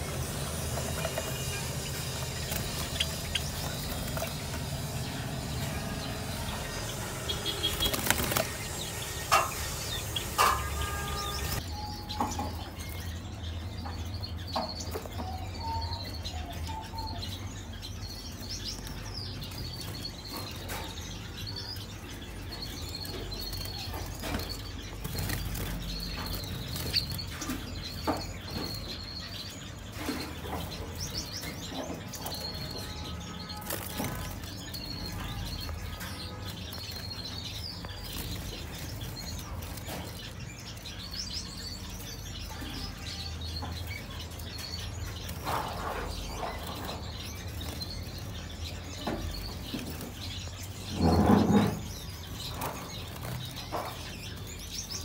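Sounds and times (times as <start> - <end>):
small birds chirping: 0.0 - 55.0
wings fluttering: 0.1 - 11.6.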